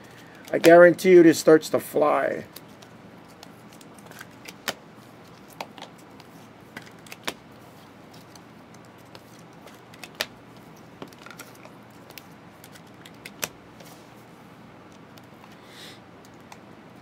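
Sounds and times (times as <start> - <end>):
cards clicking and snapping: 2.5 - 7.4, 8.1 - 13.6.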